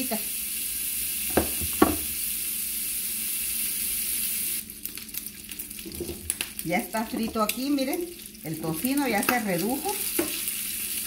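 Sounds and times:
bacon sizzling in a frying pan: 0:00.0 - 0:11.0
knocks: 0:01.3 - 0:02.1.

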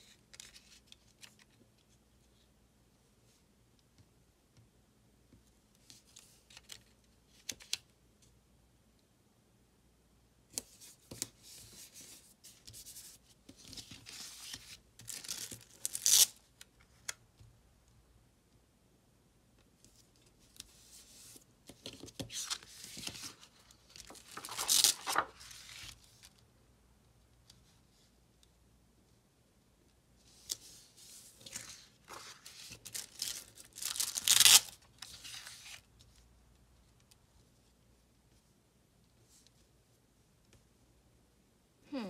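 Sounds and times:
paper rustling: 0:21.2 - 0:26.2, 0:30.5 - 0:35.8.

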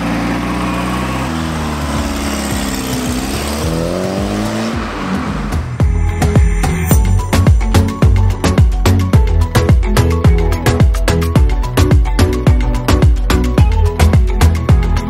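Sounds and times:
car engine accelerating: 0:00.0 - 0:08.5
music with steady beat: 0:02.6 - 0:15.0.

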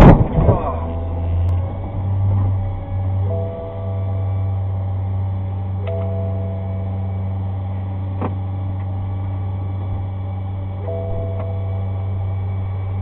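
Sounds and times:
car engine idling: 0:00.0 - 0:13.0
horn-like tones: 0:00.5 - 0:08.1.

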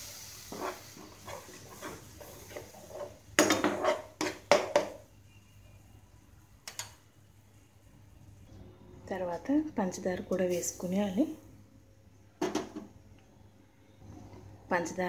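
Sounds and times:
metal spoon scraping a pan: 0:00.4 - 0:04.9.

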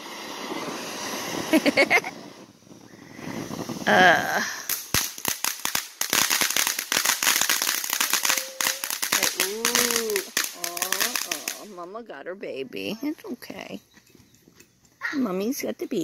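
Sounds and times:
firework crackling pops: 0:00.0 - 0:11.8
person calling out: 0:08.1 - 0:11.7.

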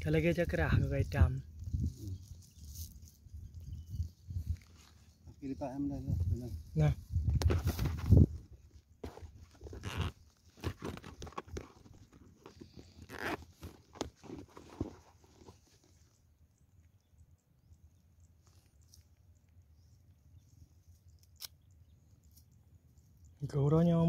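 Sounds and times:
crunching and rustling in dry grass: 0:00.0 - 0:16.3, 0:18.2 - 0:21.5.

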